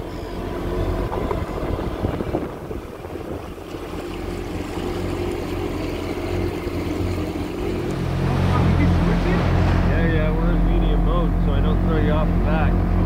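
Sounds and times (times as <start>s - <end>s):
jet ski engine running: 0.0s - 13.0s
water rushing past hull: 0.0s - 13.0s
wind on microphone: 0.8s - 4.8s.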